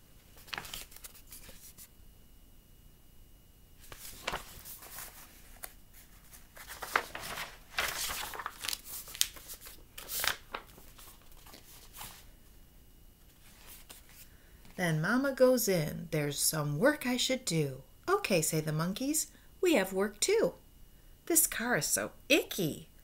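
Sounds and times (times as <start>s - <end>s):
book pages turning: 0.3s - 1.9s, 3.8s - 12.3s, 13.3s - 14.3s
paper rustles and scrapes: 0.4s - 1.9s, 3.8s - 12.3s, 13.3s - 14.3s.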